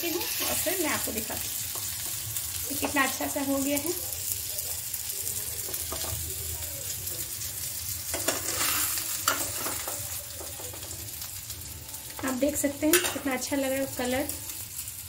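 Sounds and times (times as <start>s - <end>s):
food sizzling in oil: 0.0s - 15.0s
metal spatula scraping a pan: 8.1s - 11.2s.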